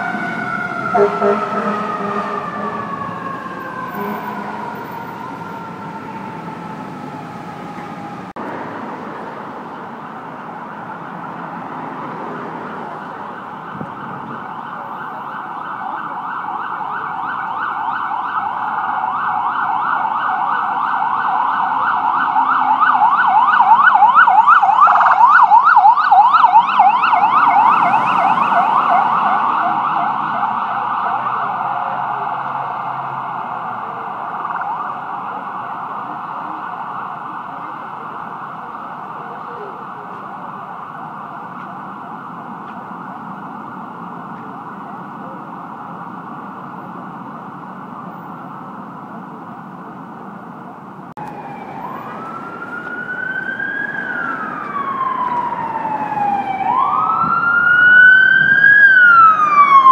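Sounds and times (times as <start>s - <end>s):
siren fast yelp: 0.0s - 7.6s, 13.4s - 36.0s, 51.2s - 59.9s
siren falling wail: 0.0s - 8.4s, 10.0s - 48.8s, 51.2s - 59.9s.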